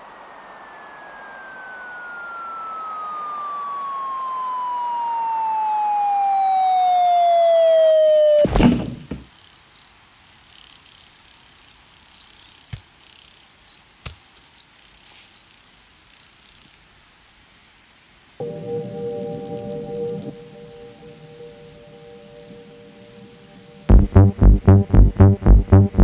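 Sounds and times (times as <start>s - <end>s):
descending cartoon whistle: 0.3s - 8.5s, 18.4s - 23.9s
heavy crashing thud: 8.5s - 9.3s.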